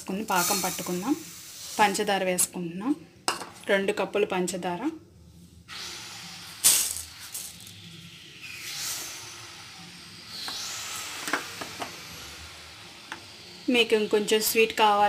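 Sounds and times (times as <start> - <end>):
water hissing on hot pan: 0.0 - 2.4, 5.7 - 15.0
sugar grains rattling: 6.6 - 7.8.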